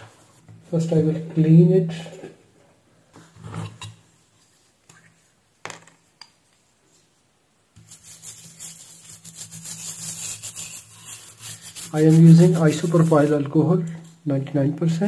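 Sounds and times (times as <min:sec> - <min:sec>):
brush scrubbing circuit board: 0:07.8 - 0:13.4.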